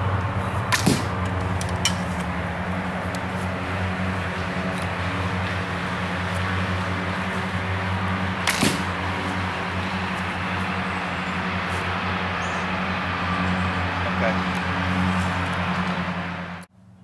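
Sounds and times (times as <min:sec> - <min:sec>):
low hum: 0:00.0 - 0:16.7
bow string snapping: 0:00.7 - 0:02.3, 0:08.4 - 0:09.0.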